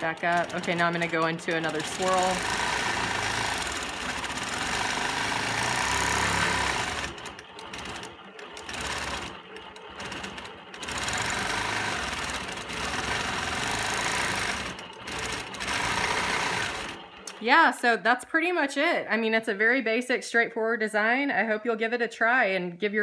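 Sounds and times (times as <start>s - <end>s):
quilting machine stitching: 0.0s - 17.7s.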